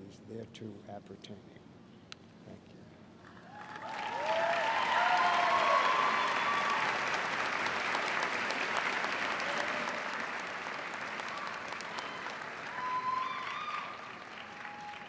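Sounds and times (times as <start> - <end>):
audience applauding: 3.3 - 15.0.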